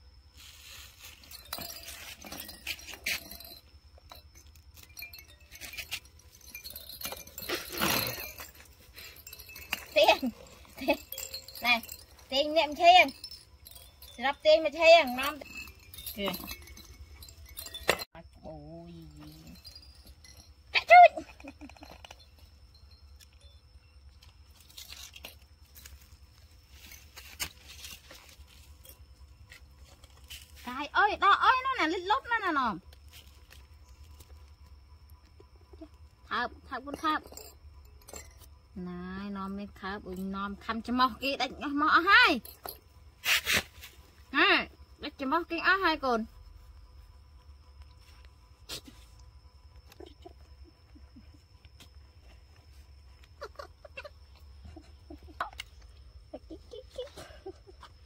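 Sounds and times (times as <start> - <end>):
rustling in leaves and dirt: 0.0 - 21.6, 22.2 - 36.3
monkey scrambling over toys: 0.4 - 18.2
faint tinkling chime tones: 0.4 - 43.1.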